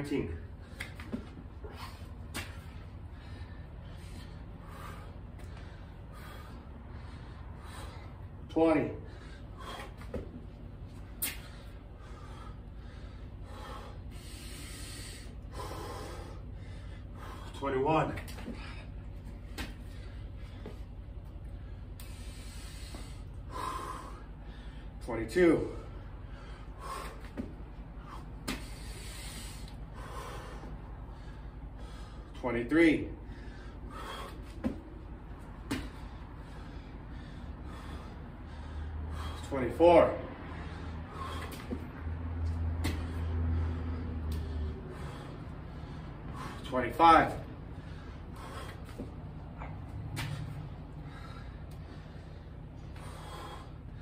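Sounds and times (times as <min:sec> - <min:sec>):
man breathing hard: 0:00.0 - 0:54.0
hands and feet thudding on concrete: 0:00.7 - 0:03.0, 0:09.7 - 0:11.6, 0:18.1 - 0:20.9, 0:27.0 - 0:29.0, 0:34.1 - 0:36.3, 0:41.2 - 0:43.4, 0:48.4 - 0:51.9.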